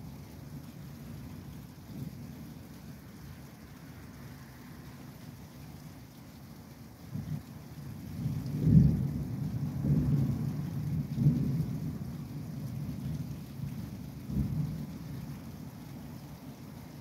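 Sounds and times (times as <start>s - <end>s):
thunder rumbling: 8.2s - 15.1s.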